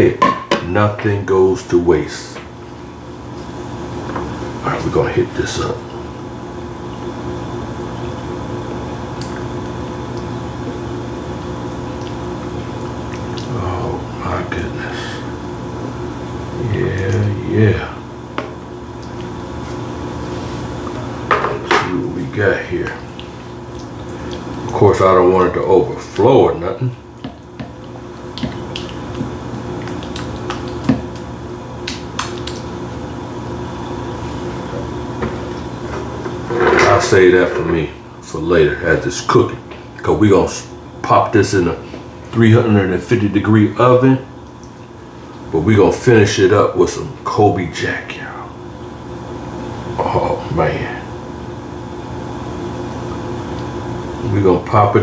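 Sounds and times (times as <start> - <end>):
steady background hum: 0.0 - 55.0
liquid pouring with wet squishes: 11.4 - 14.0, 22.8 - 33.2.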